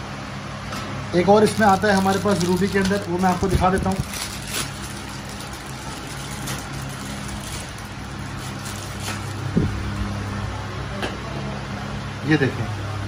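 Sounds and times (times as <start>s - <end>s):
low background hum: 0.0s - 13.0s
plastic packaging clicks and rustles: 1.4s - 9.6s.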